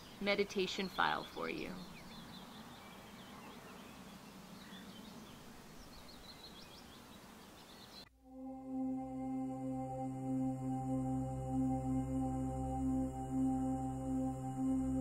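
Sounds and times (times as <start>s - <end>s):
small birds chirping: 0.0s - 8.1s
steady background hiss: 0.0s - 8.1s.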